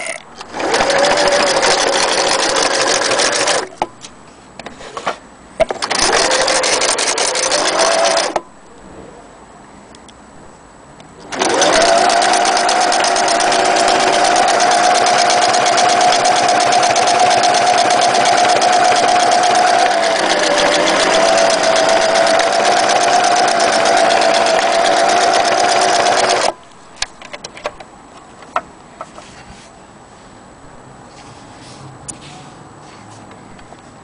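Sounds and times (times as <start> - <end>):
sewing machine running: 0.4 - 3.7, 5.8 - 8.4, 11.2 - 26.6.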